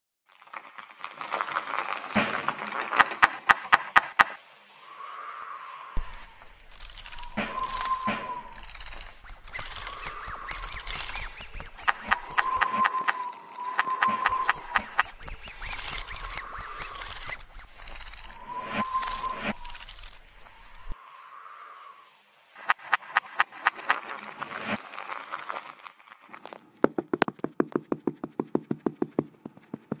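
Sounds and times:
dense crackle of clicks: 0.3s - 3.4s, 23.8s - 26.6s
hiss: 3.0s - 24.8s
sharp clicks: 6.0s - 21.0s
hollow knocks: 26.8s - 30.0s.

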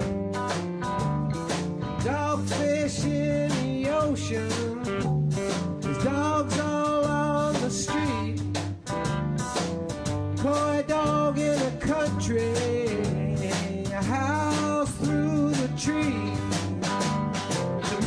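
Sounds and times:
blues song with guitar: 0.0s - 18.0s.

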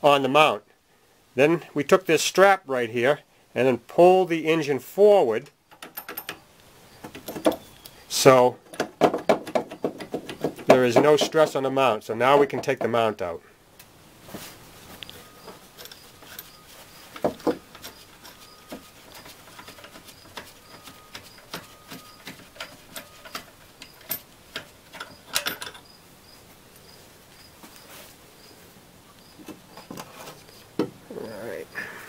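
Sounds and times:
metal knocks: 8.6s - 11.7s, 12.3s - 13.1s, 17.1s - 25.9s
hand tools clicking: 15.0s - 25.9s.

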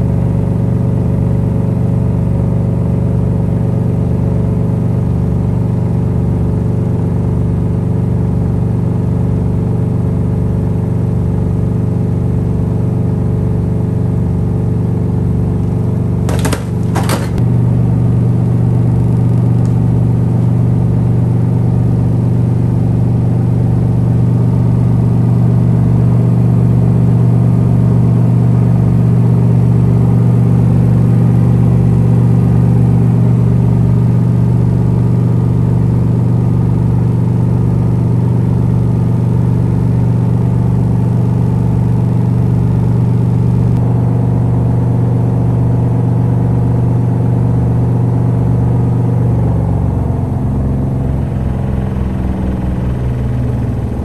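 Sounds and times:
washing machine spinning hum: 0.0s - 54.0s
sharp knocks: 16.3s - 17.4s.

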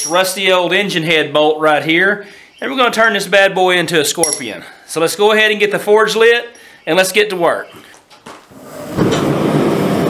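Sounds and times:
gas burner hissing: 8.5s - 10.0s
gas burner roaring: 8.5s - 10.0s.

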